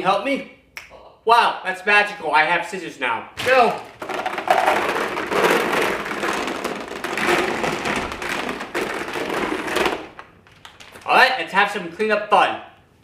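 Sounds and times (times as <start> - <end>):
gummy candies pouring onto surfaces: 3.4 - 11.1.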